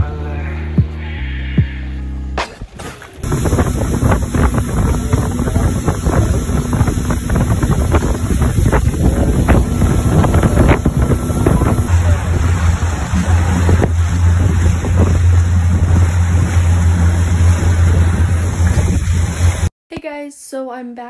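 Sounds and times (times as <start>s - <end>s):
motorboat engine drone: 3.2s - 19.7s
water rushing past hull: 3.2s - 19.7s
wind buffeting microphone: 3.2s - 19.7s.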